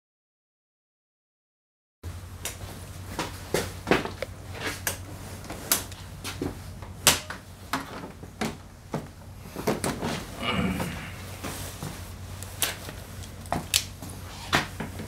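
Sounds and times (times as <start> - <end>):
steady low hum: 2.0 - 15.0.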